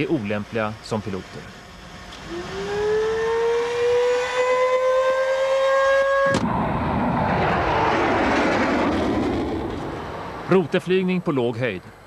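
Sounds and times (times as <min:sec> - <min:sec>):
jet engine whining: 0:00.0 - 0:10.8
jet engine roar: 0:00.0 - 0:11.2.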